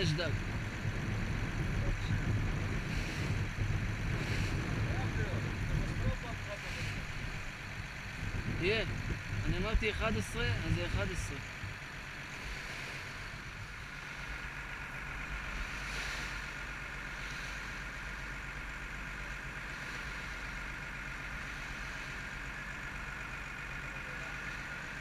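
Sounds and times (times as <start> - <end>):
boat engine droning: 0.0 - 25.0
water washing along hull: 0.0 - 25.0.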